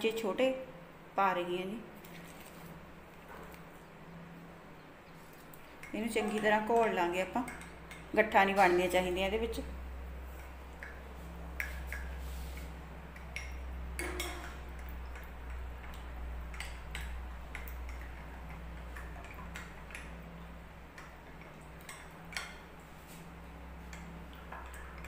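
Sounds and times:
low steady hum: 0.0s - 25.0s
spoon clinking against glass: 13.3s - 14.6s.

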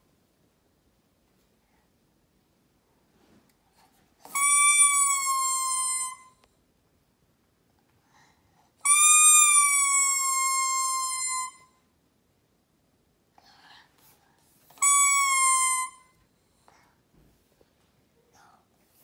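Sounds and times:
toy trumpet toots: 4.2s - 6.4s, 8.8s - 11.7s, 14.8s - 16.2s.

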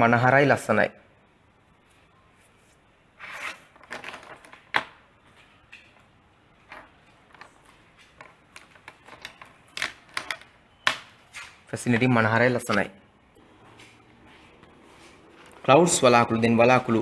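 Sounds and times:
handling rustles and clicks: 3.8s - 12.9s.

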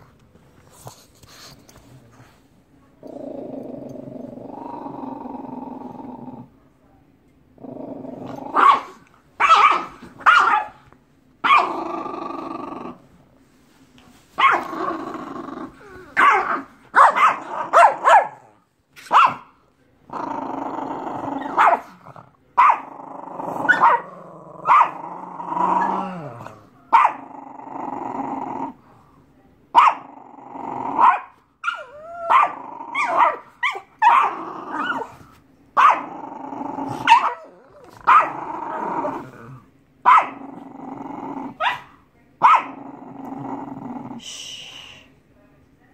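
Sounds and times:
puppy growling and barking: 7.6s - 10.8s, 11.4s - 13.1s, 14.4s - 19.5s, 20.1s - 28.8s, 29.8s - 35.2s, 35.8s - 44.2s.

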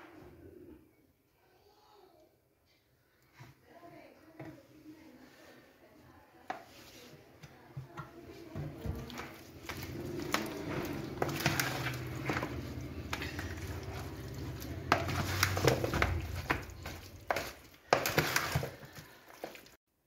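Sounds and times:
hand mixing wet chicken pieces: 6.6s - 19.8s.

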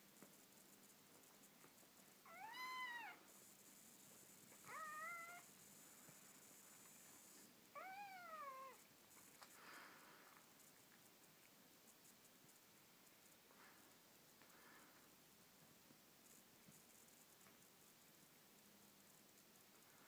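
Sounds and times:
kitten meowing: 2.3s - 3.2s, 4.7s - 5.4s, 7.8s - 8.8s.

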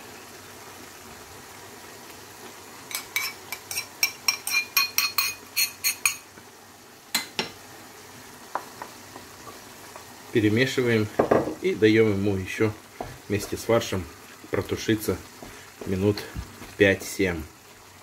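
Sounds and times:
utensil clinking against ceramic bowl: 2.9s - 6.2s.

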